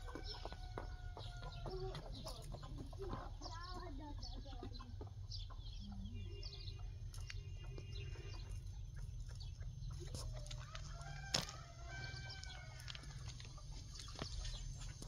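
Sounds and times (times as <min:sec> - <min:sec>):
rooster crowing: 0:10.6 - 0:13.3.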